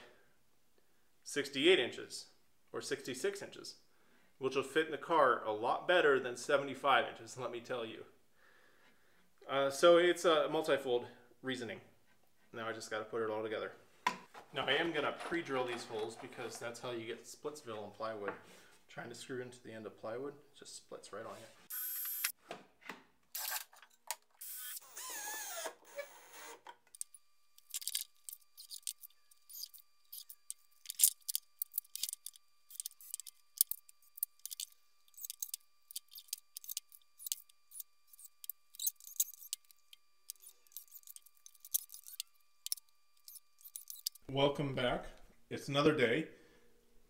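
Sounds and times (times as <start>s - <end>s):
cordless drill boring into wood: 21.7s - 22.3s, 24.4s - 26.6s.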